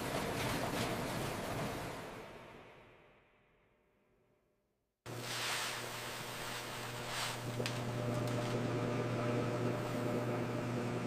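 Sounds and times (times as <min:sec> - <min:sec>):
seasoning drum humming: 0:05.1 - 0:11.0.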